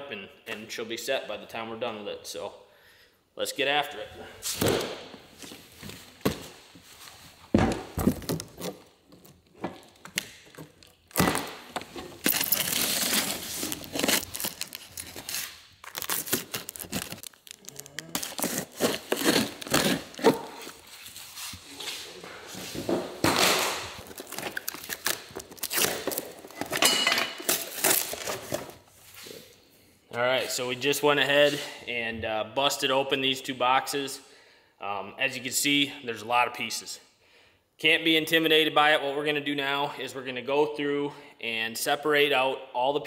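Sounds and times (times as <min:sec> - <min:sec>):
packing material crinkling: 0:10.8 - 0:21.6, 0:23.8 - 0:26.8
cardboard boxes tearing: 0:11.1 - 0:21.2, 0:23.2 - 0:26.8, 0:27.4 - 0:28.8.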